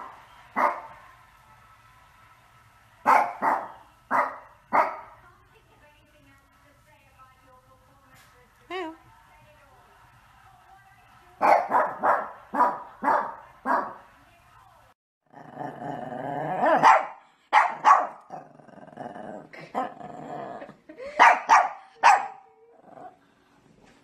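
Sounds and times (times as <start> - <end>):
dog barking: 0.0 - 1.0, 3.0 - 5.2, 11.4 - 14.0, 16.6 - 18.4, 21.2 - 22.5.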